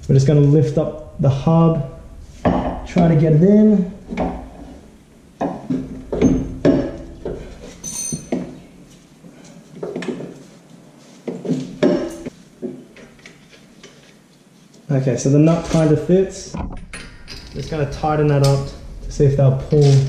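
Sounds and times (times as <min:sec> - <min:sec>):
metal clanks and knocks: 0:02.0 - 0:08.7, 0:15.6 - 0:20.0
short metallic ring: 0:07.8 - 0:08.4.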